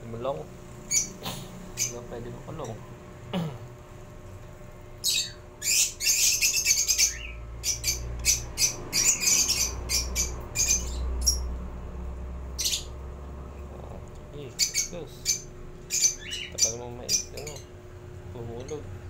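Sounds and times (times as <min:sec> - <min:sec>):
bird chirping: 0:00.9 - 0:01.2, 0:01.8 - 0:02.0, 0:05.0 - 0:11.5, 0:12.6 - 0:12.9, 0:14.5 - 0:17.7.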